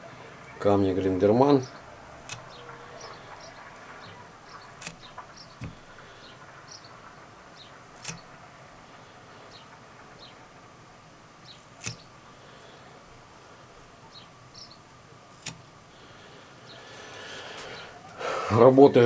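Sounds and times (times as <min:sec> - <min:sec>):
clicks and taps of card strips: 0:02.2 - 0:06.0, 0:08.0 - 0:08.3, 0:11.8 - 0:12.0.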